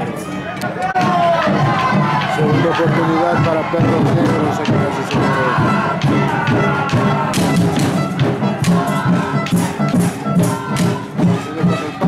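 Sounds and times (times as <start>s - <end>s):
loud music with steady drumbeat: 0.9s - 12.0s.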